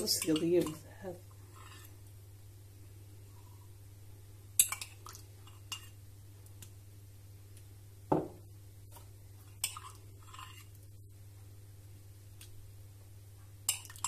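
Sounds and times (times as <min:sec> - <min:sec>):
dull knock: 0:08.1 - 0:08.4.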